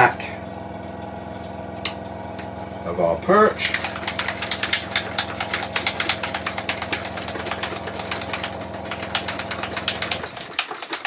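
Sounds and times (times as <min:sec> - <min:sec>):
air compressor humming and clicking: 0:00.0 - 0:11.0.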